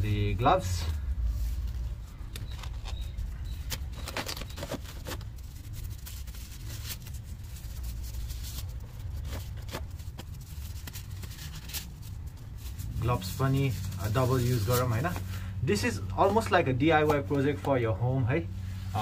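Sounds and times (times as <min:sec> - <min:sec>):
disposable gloves crinkling: 0:01.2 - 0:15.6.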